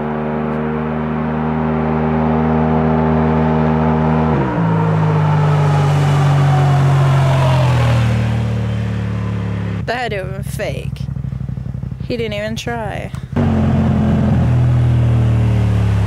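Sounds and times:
falling whine: 0.0 - 9.9
turbocharged engine accelerating: 0.0 - 16.0.

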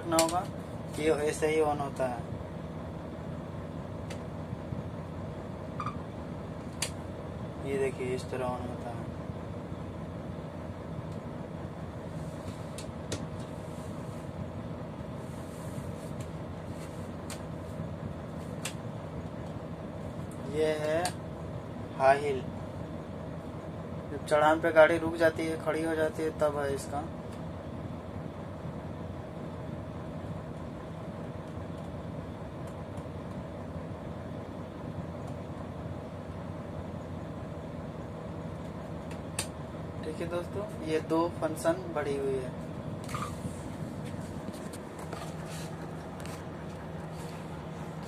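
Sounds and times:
diesel engine idling: 0.0 - 48.0.

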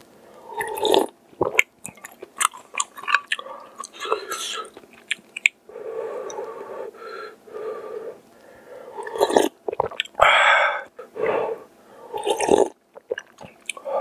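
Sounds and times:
slurping broth from spoon: 0.5 - 1.1, 9.0 - 9.9, 12.2 - 12.7
mouth clicks: 0.6 - 5.6, 9.0 - 10.2, 12.2 - 13.9
person breathing: 5.7 - 9.2, 10.2 - 12.4, 13.8 - 14.0.

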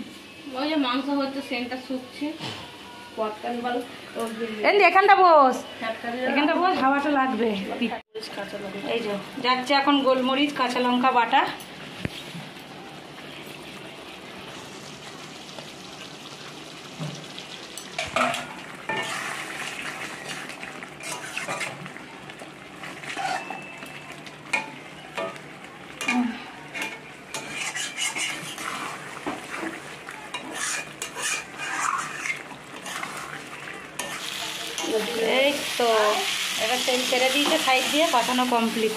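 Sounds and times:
curry sizzling in pan: 8.3 - 38.9
metal spatula scraping pan: 21.0 - 21.8, 23.0 - 23.6, 26.0 - 29.7, 30.3 - 33.4.

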